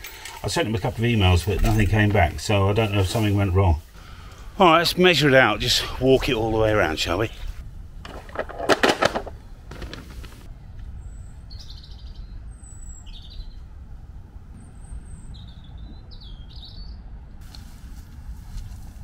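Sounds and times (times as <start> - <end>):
steady low rumble: 0.6 - 19.0
plastic hand truck clattering: 8.0 - 10.4
small birds chirping: 10.7 - 13.8, 14.5 - 17.6.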